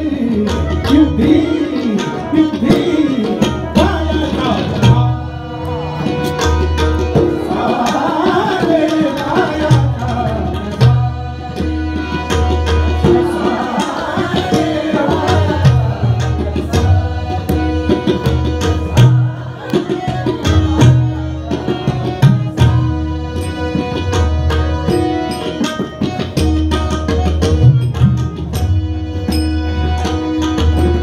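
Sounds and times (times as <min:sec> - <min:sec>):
man singing: 0:00.0 - 0:06.2, 0:07.2 - 0:12.2, 0:12.9 - 0:18.2, 0:19.5 - 0:23.2
harmonium: 0:00.0 - 0:31.0
tabla rhythm: 0:00.0 - 0:31.0.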